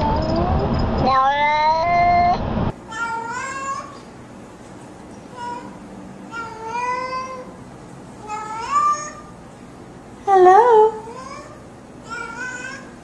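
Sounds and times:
cat meowing: 0:01.0 - 0:02.4.

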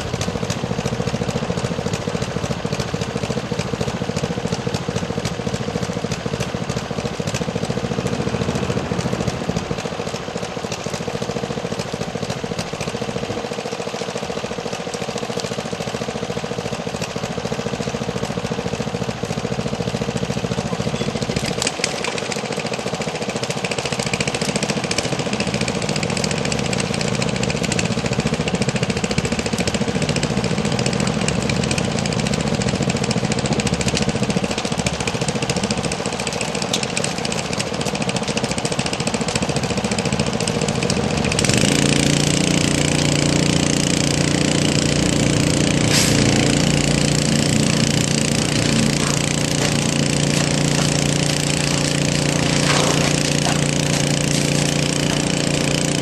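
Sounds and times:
small pump engine running: 0:00.0 - 0:56.0
water hose hissing: 0:45.4 - 0:56.0.

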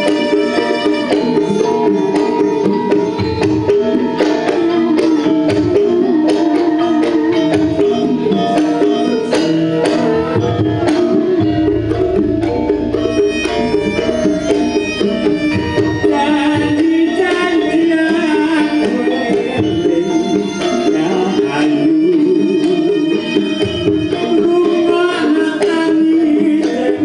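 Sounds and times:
person singing: 0:00.0 - 0:12.9, 0:15.3 - 0:27.0
gamelan ensemble: 0:00.0 - 0:27.0
hand drum strokes: 0:00.0 - 0:27.0
bass line: 0:11.2 - 0:15.5.

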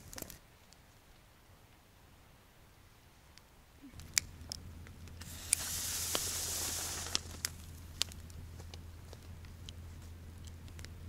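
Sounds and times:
campfire crackling and popping: 0:00.0 - 0:00.8, 0:03.9 - 0:11.0
rushing hiss: 0:05.2 - 0:07.8.

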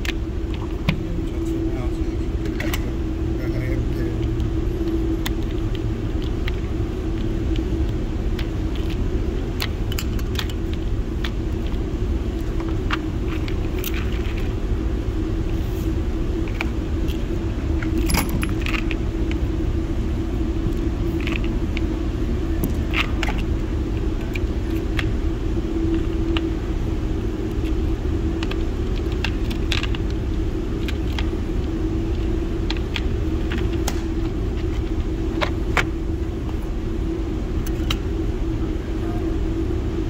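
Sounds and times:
ventilation rumble and hum: 0:00.0 - 0:40.0
light metallic clicks and clinks: 0:18.0 - 0:18.8.

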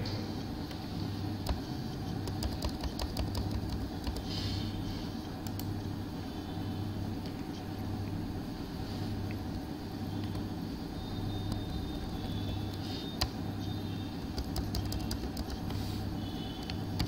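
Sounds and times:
low background hum: 0:00.0 - 0:17.0
keyboard key clicks: 0:02.2 - 0:04.2, 0:14.3 - 0:15.8.

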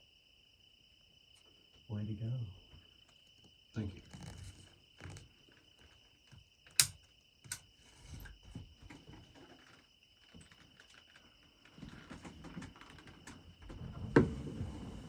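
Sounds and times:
high-pitched insect trill: 0:00.0 - 0:13.9
sharp clicks: 0:06.7 - 0:07.7.

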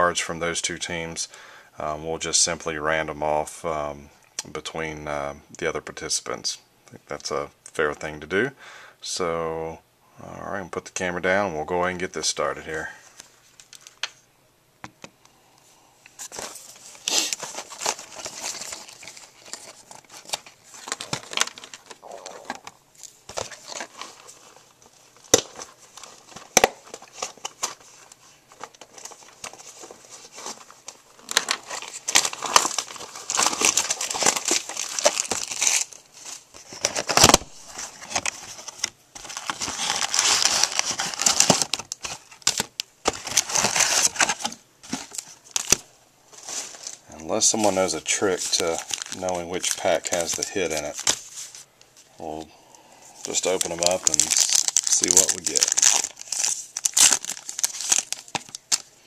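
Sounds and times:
plastic shrink wrap crinkling: 0:16.2 - 0:52.4, 0:53.2 - 0:59.0.

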